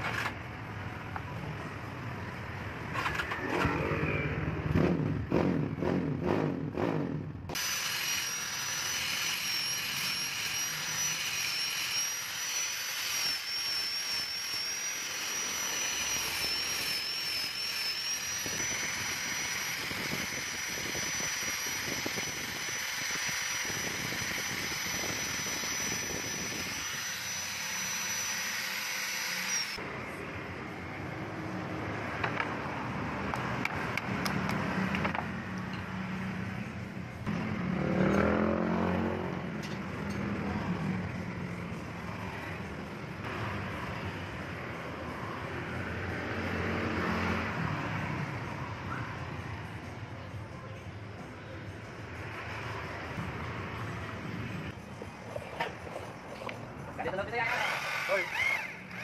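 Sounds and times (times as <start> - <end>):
orbital sander whining: 7.6 - 29.8, 57.4 - 59.0.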